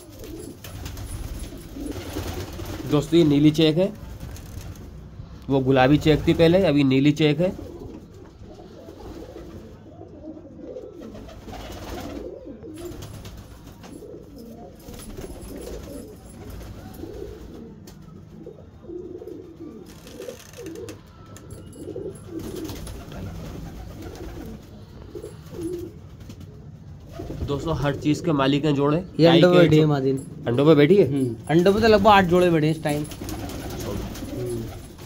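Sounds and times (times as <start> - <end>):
pigeons cooing: 0.0 - 5.3, 7.2 - 30.4, 31.3 - 35.0.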